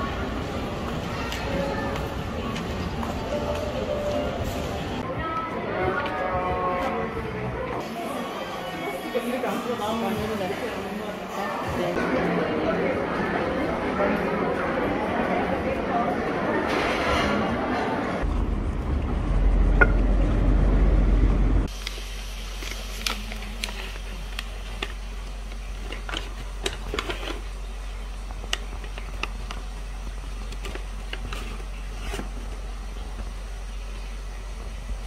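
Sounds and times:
loud rumbling handling noise: 0:18.2 - 0:21.7.

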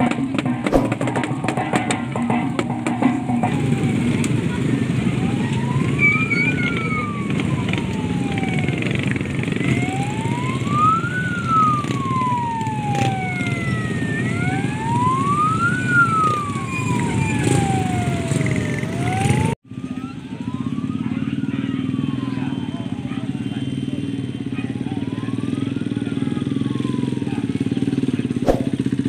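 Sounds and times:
motorcycle engines running: 0:00.0 - 0:29.0
siren wailing: 0:00.7 - 0:23.2, 0:28.4 - 0:28.8.

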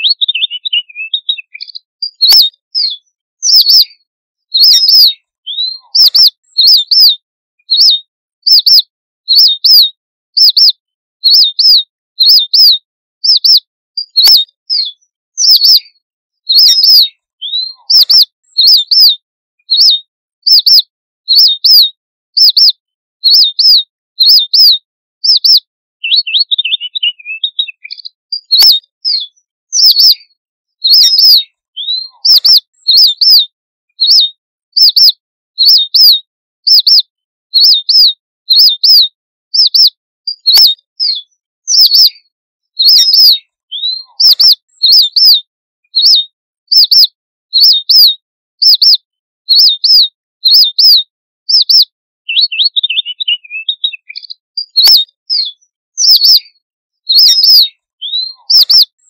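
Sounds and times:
low bird twittering: 0:00.0 - 0:20.8, 0:23.3 - 0:30.2, 0:30.8 - 0:33.4, 0:41.7 - 0:42.1, 0:51.5 - 0:55.1
thin high bird calls: 0:00.0 - 0:21.8, 0:22.4 - 0:22.7, 0:23.3 - 0:28.9, 0:30.9 - 0:33.4, 0:34.0 - 0:36.1, 0:39.6 - 0:40.8, 0:41.7 - 0:45.3, 0:48.6 - 0:49.0, 0:57.1 - 0:58.9.

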